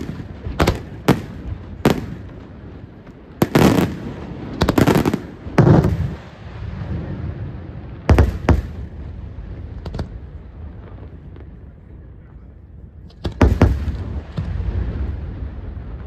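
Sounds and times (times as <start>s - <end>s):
firework shells booming: 0.0s - 6.3s, 8.0s - 9.1s, 13.0s - 16.0s.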